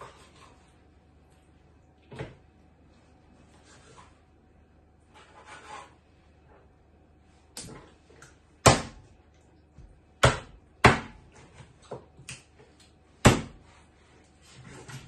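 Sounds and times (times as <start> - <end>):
knife chopping on wooden board: 8.6 - 9.0, 10.2 - 11.2, 13.2 - 13.6.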